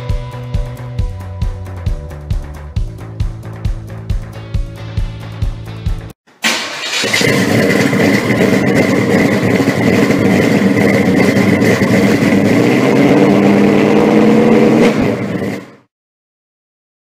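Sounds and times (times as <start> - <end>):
car engine running: 6.5 - 15.8.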